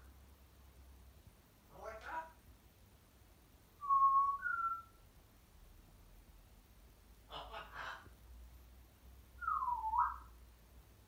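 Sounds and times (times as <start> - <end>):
parrot whistling: 3.8 - 5.0, 9.4 - 10.3
parrot chatter: 7.3 - 8.1.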